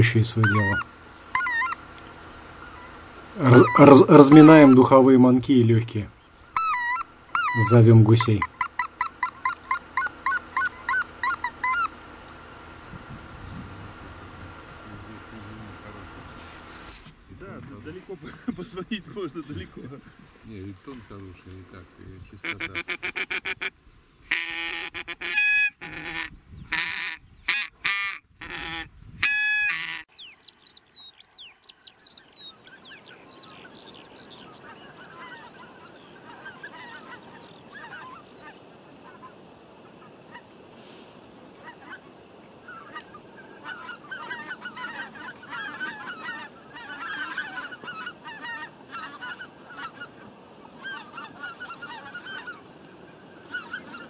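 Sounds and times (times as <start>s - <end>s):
goose call clucks and honks: 0.0s - 5.1s, 6.5s - 12.7s, 22.4s - 30.1s, 34.6s - 40.5s, 41.6s - 52.6s, 53.4s - 54.0s
flock of geese honking: 0.0s - 17.2s, 17.9s - 30.1s, 32.6s - 54.0s.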